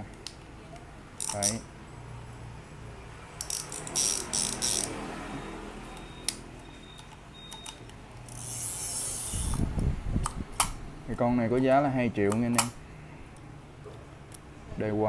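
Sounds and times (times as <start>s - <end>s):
fishing reel ratcheting clicks: 1.2s - 1.6s, 3.4s - 4.9s, 8.3s - 9.6s.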